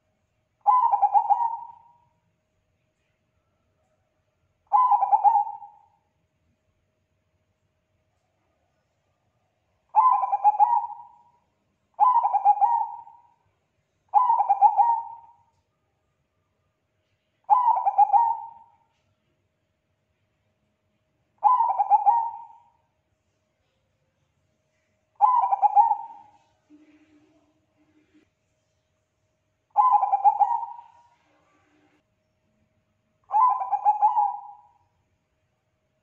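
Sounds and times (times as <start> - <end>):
dove cooing: 0.6 - 2.0, 4.7 - 5.9, 9.9 - 11.3, 12.0 - 13.4, 14.1 - 15.4, 17.5 - 18.7, 21.4 - 22.8, 25.2 - 28.2, 29.7 - 31.8, 33.3 - 34.8.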